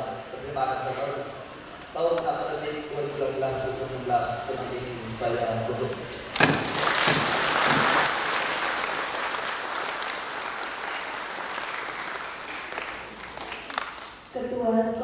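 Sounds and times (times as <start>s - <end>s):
audience applauding: 6.4s - 14.3s.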